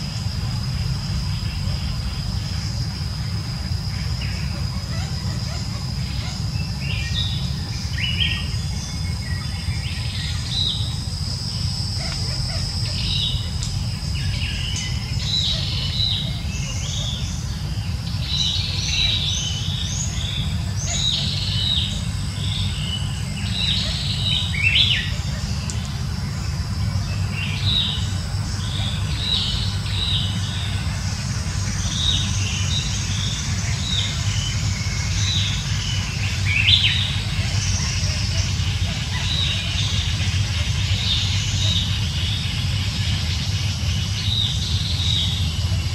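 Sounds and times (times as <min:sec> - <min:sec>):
small birds chirping: 0:00.0 - 0:45.9
steady low rumble: 0:00.0 - 0:45.9.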